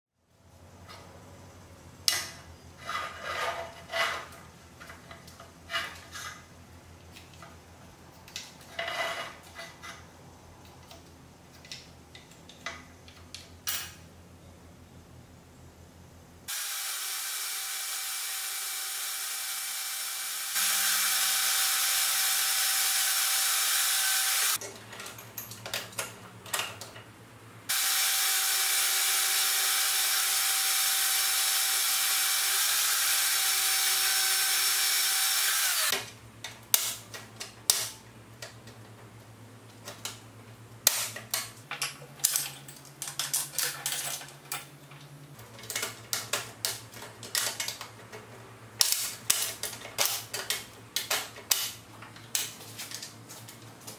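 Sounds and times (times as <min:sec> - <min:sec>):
band saw cutting steel: 0:16.5 - 0:24.6, 0:27.7 - 0:36.0.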